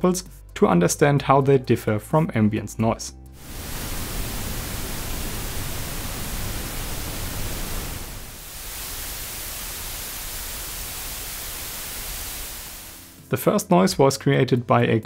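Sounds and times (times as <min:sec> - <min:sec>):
microphone self-noise hiss: 0:03.3 - 0:13.3
recorder preamp hiss: 0:03.4 - 0:13.3.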